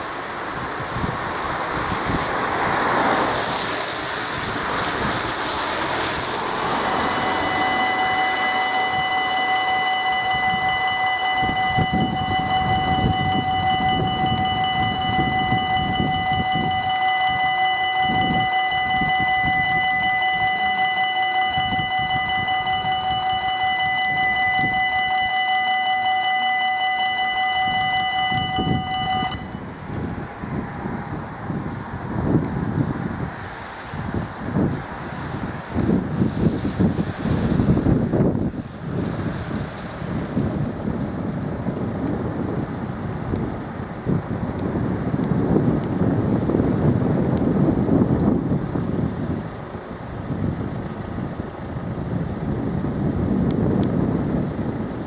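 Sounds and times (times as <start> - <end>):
car tyres hissing on wet road: 0.0 - 24.1, 29.6 - 55.0
level crossing warning bell: 6.7 - 29.7.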